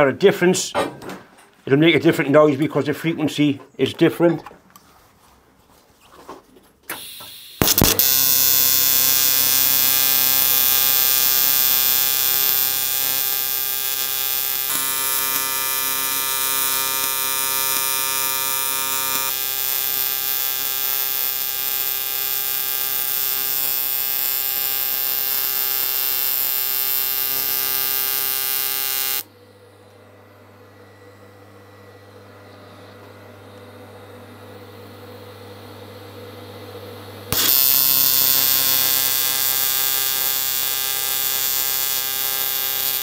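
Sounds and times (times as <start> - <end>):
welding arc striking crackle: 6.9 - 29.2, 37.3 - 43.0
welding arc buzzing: 7.0 - 29.3, 36.4 - 43.0.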